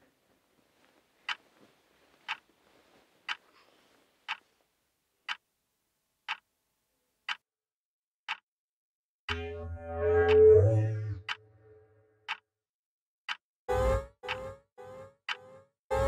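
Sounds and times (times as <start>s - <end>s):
clock ticking: 6.3s - 6.5s, 9.3s - 9.6s, 11.2s - 11.4s, 12.3s - 12.5s, 13.3s - 16.0s.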